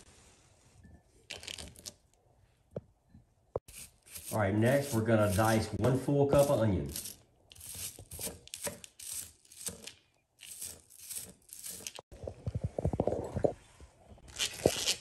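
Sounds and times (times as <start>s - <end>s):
knife slicing onion: 3.7s - 12.0s.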